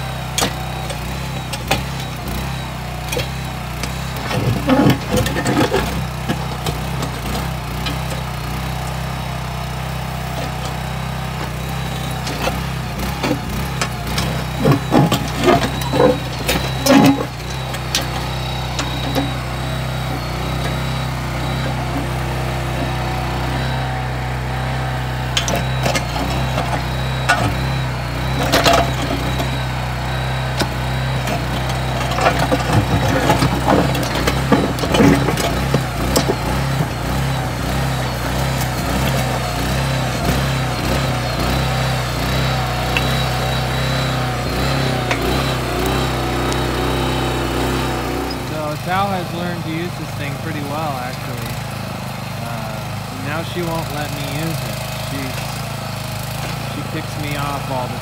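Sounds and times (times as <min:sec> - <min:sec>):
small engine running: 0:00.0 - 0:58.0
bucket clanking and scraping on stones: 0:04.1 - 0:08.3, 0:12.2 - 0:23.0, 0:30.6 - 0:41.6.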